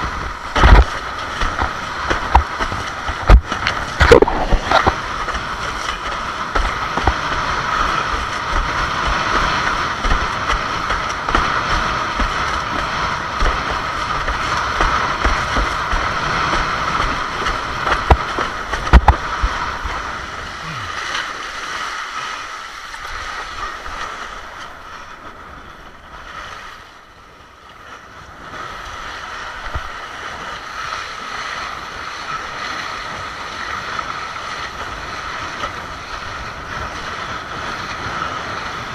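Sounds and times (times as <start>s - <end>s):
wind buffeting microphone: 0.0s - 20.8s
board slapping water: 0.0s - 38.9s
water rushing under board: 0.0s - 38.9s.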